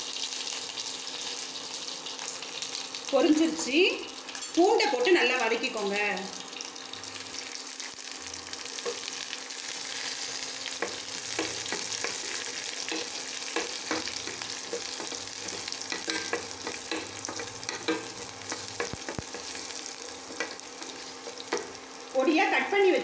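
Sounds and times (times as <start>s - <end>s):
garlic sizzling in oil: 0.0s - 23.0s
spoon scraping metal pan: 10.8s - 19.7s.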